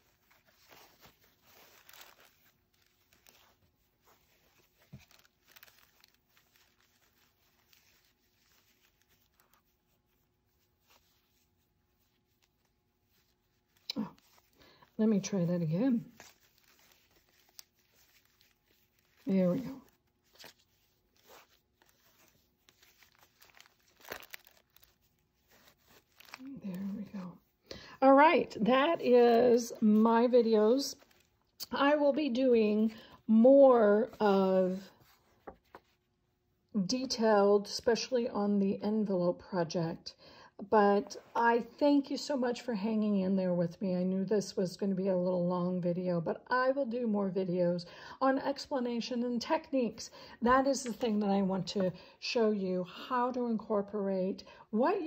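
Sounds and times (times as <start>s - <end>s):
soft scrapes against paper: 0.0s - 27.7s, 34.0s - 36.1s
fabric ribbon rustling: 0.0s - 36.1s, 50.8s - 51.9s.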